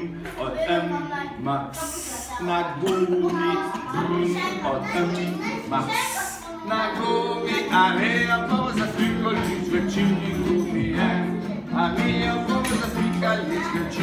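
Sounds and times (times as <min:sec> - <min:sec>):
children singing together: 0:00.0 - 0:14.0
instrumental accompaniment: 0:06.0 - 0:14.0.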